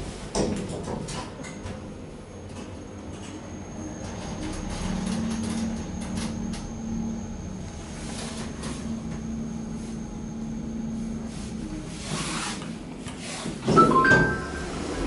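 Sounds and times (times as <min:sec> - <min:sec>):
lift car humming: 0:03.2 - 0:15.0
lift doors clattering: 0:13.2 - 0:15.0
lift arrival chime: 0:13.8 - 0:15.0.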